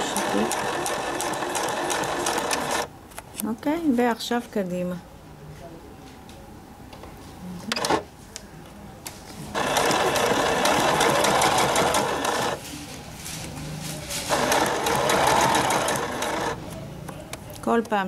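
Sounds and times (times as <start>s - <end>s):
sewing machine stitching: 0.0s - 2.9s, 9.6s - 12.6s, 14.3s - 16.6s.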